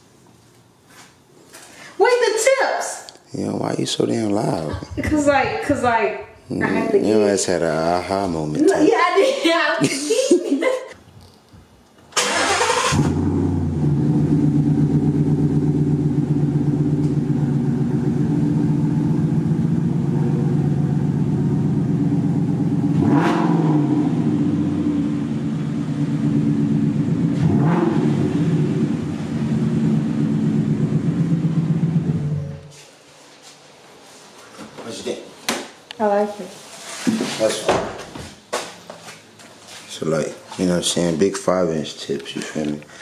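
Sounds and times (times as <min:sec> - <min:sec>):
car engine idling and revving: 0:12.5 - 0:32.7.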